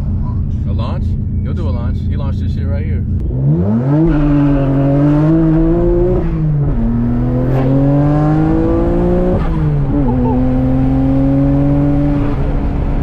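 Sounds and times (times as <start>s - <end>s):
car engine accelerating through gears: 3.2s - 13.0s.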